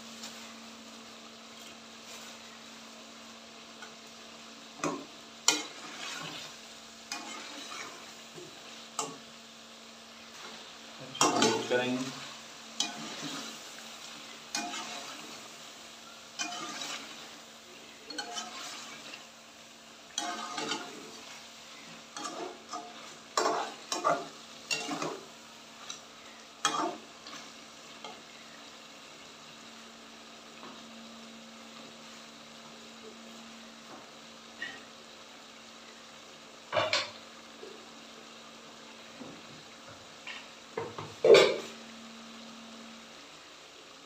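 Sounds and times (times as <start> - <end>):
frying sizzle: 0.0 - 44.0
metal spatula scraping pot: 7.1 - 8.0, 12.8 - 13.6, 14.5 - 15.4, 16.4 - 17.4, 18.0 - 19.2, 20.1 - 21.2, 21.8 - 25.3
low steady hum: 41.1 - 44.0.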